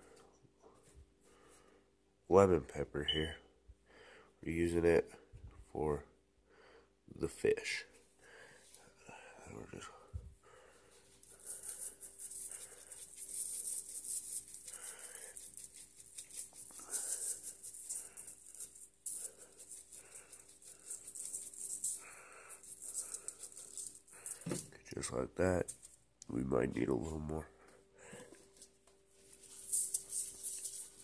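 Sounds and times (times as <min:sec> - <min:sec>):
shaker jar rattling granules: 0:11.1 - 0:24.5, 0:29.3 - 0:31.0.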